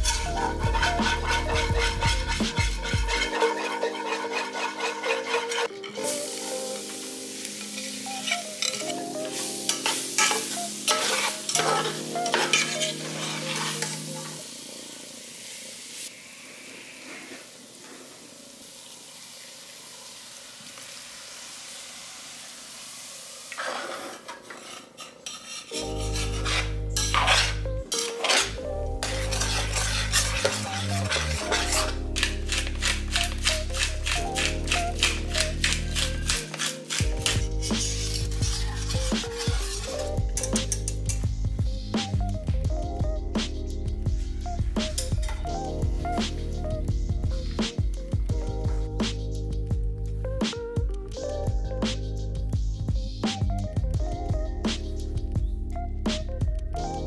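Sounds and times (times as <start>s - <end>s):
utensil scraping pan: 0.0s - 6.3s, 9.7s - 14.4s, 23.5s - 41.3s
background music: 0.0s - 16.1s, 25.7s - 57.0s
food sizzling in a frying pan: 0.0s - 41.4s.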